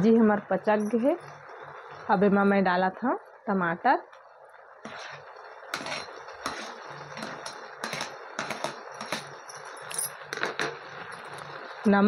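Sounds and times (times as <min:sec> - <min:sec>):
frying hiss: 0:00.0 - 0:12.0
spoon scraping and tapping: 0:04.9 - 0:05.2, 0:05.8 - 0:11.4.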